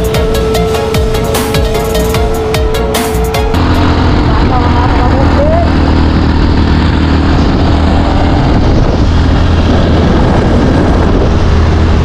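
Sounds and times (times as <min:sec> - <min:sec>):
motorcycle engine hum: 0:00.0 - 0:12.0
wind on microphone: 0:03.5 - 0:12.0.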